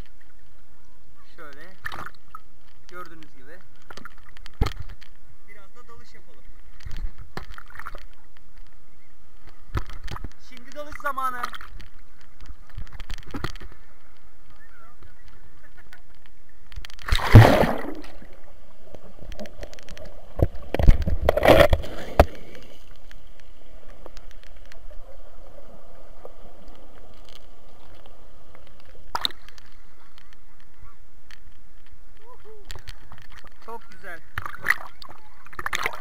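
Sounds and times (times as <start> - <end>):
muffled underwater hiss: 8.1 - 35.7
churning water and bubbles underwater: 15.2 - 36.0
water splash: 17.0 - 23.4, 34.4 - 36.0.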